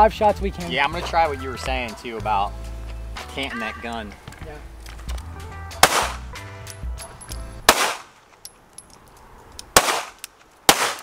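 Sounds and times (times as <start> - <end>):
pistol shots with echo: 5.8 - 6.2, 7.7 - 8.1, 9.8 - 11.0.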